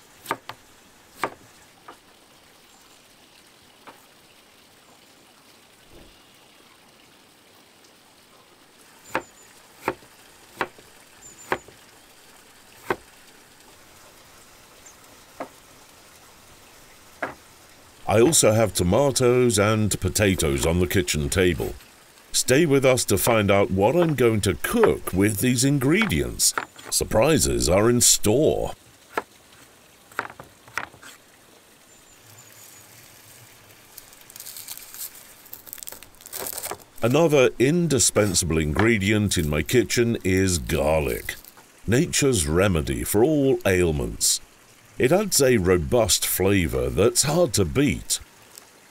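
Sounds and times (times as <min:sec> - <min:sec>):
faint steady hiss: 0:00.0 - 0:48.9
sharp knocks: 0:17.2 - 0:17.4, 0:30.1 - 0:31.0.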